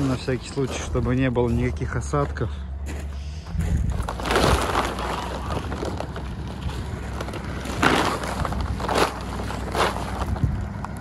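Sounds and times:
truck engine running: 0.0 - 11.0
wind buffeting microphone: 3.5 - 4.8, 10.1 - 11.0.

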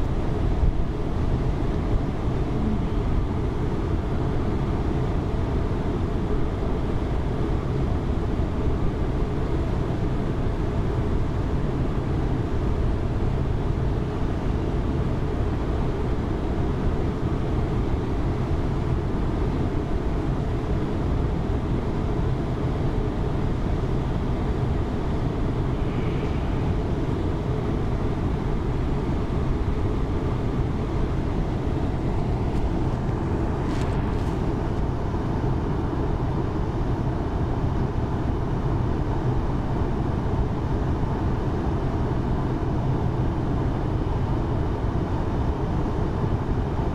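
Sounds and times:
ship engine rumble: 24.2 - 36.0.

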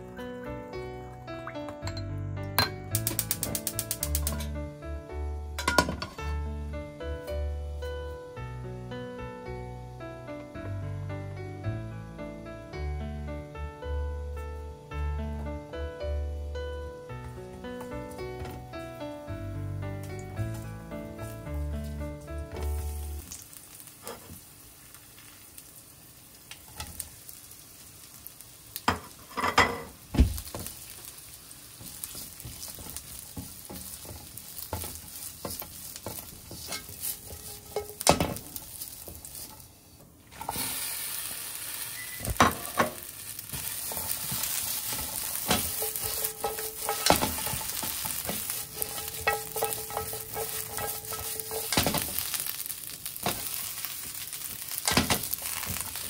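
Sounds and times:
food sizzling in frying pan: 0.0 - 10.8, 12.3 - 56.0
spatula scraping pan: 31.9 - 39.6, 42.0 - 56.0.

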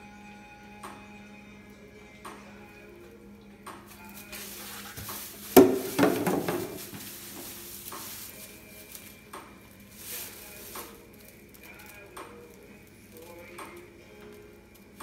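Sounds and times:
hooves shuffling in straw: 3.8 - 15.0
rustling in straw bedding: 3.8 - 15.0.

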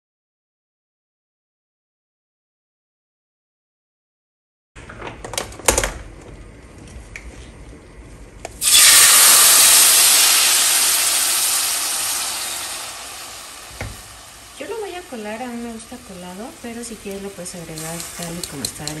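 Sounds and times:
sauce sizzling in hot oil: 8.6 - 19.0.

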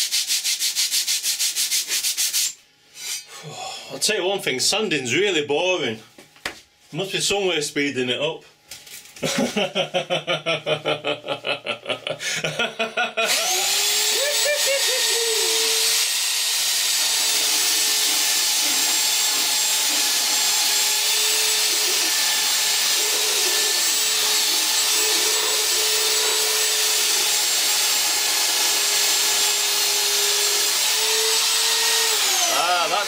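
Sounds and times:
belt sander running: 13.2 - 33.0.

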